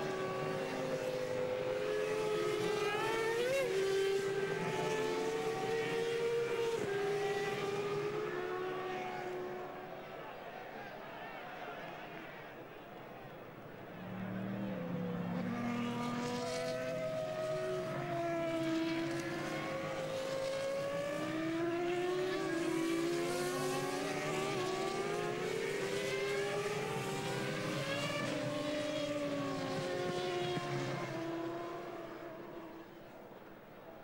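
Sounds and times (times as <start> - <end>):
racing car engines: 0.0 - 34.0.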